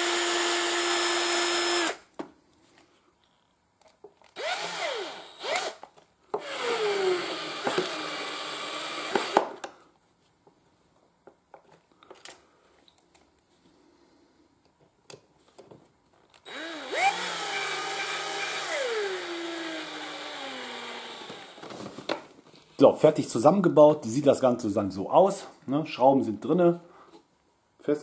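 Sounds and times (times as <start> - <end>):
cordless drill whine: 0.0 - 2.0, 4.4 - 5.8, 6.4 - 9.5, 16.4 - 21.7.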